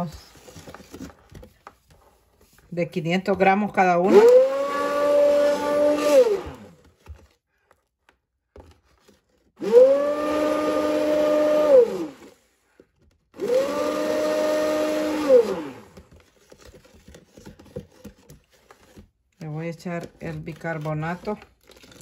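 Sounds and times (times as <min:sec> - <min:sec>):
immersion blender whirring: 0:03.4 - 0:06.9, 0:09.6 - 0:12.6, 0:13.3 - 0:18.2, 0:19.9 - 0:22.0.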